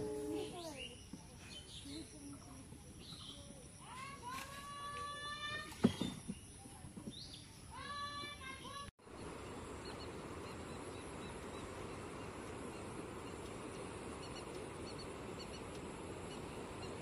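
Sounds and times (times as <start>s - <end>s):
wind: 0.0s - 17.0s
faint high bird calls: 7.3s - 17.0s.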